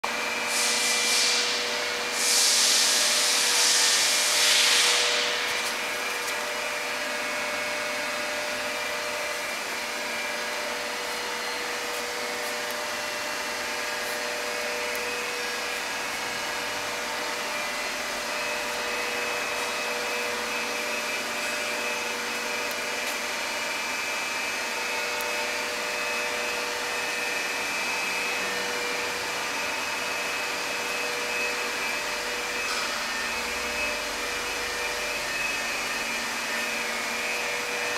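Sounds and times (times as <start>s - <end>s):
machine humming and whining: 0.0s - 37.9s
loud hiss: 0.4s - 5.6s.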